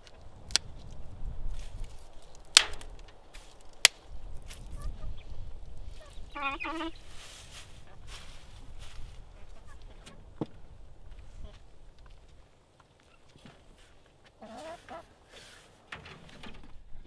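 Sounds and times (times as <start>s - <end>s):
wind on microphone: 0.0s - 3.3s, 4.0s - 12.0s
turkey call: 6.0s - 7.1s, 14.4s - 15.1s.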